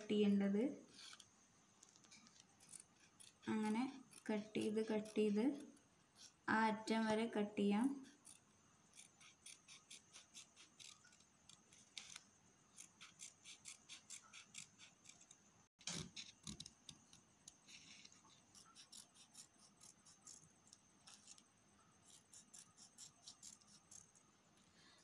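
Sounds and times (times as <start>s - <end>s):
scissors snipping paper: 1.8s - 5.3s, 9.0s - 12.2s, 12.8s - 21.4s, 22.0s - 24.2s.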